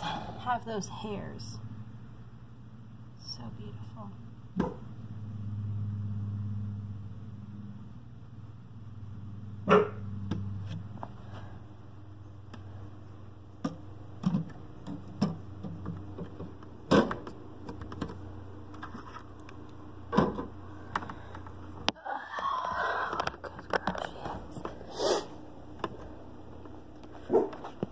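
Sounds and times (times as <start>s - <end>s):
low steady hum: 0.0s - 27.9s
dog barking: 9.6s - 10.1s, 27.3s - 27.6s.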